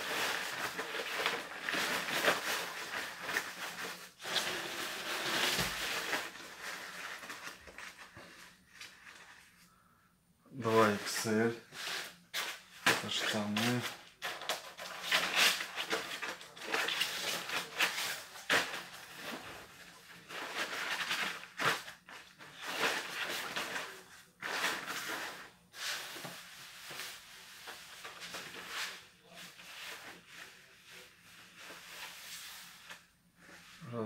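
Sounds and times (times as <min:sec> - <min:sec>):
raincoat fabric rustling and crinkling: 0:00.0 - 0:09.6.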